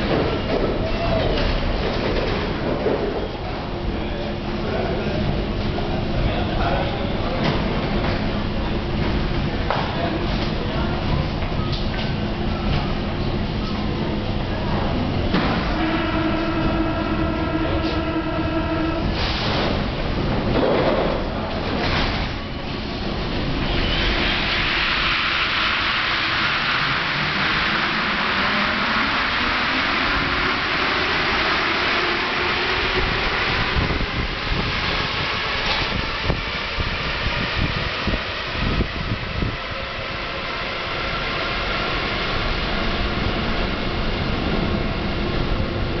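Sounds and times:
train low rumble: 0.0 - 46.0
train rushing hiss: 13.8 - 20.2, 22.7 - 46.0.

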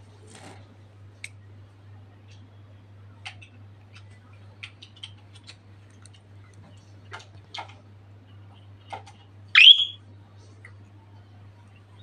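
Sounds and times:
budgerigar chirp rising in pitch: 9.6 - 10.0.

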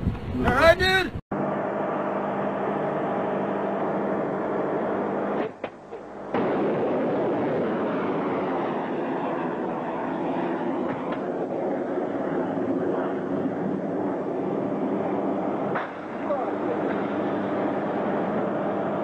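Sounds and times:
missile launch rushing noise: 6.2 - 18.2.

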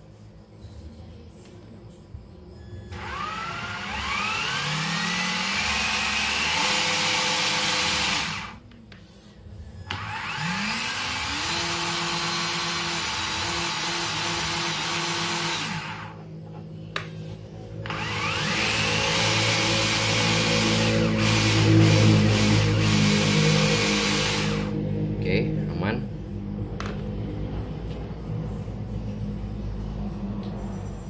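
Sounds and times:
electric motor whine: 2.9 - 8.6, 9.9 - 16.2, 17.8 - 25.8.

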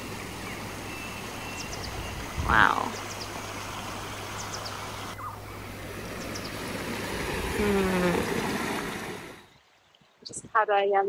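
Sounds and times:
stream water rushing: 0.0 - 10.2.

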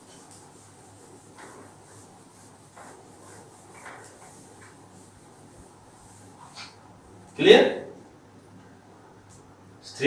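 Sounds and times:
eraser rubbing on whiteboard: 0.0 - 6.8.

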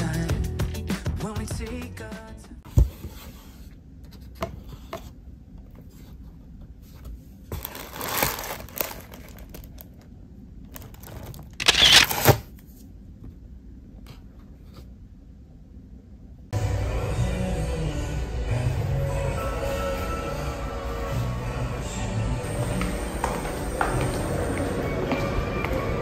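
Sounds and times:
paper crinkling and rustling: 7.5 - 10.1, 10.7 - 12.4.

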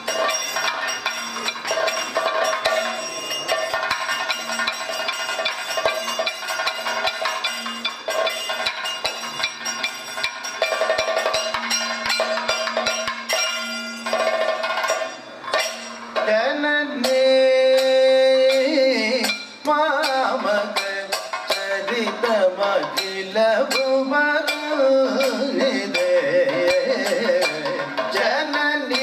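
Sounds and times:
rapid drum strokes: 0.0 - 29.0
ringing cymbal strikes: 0.0 - 29.0
man singing held wavering line: 16.2 - 29.0.

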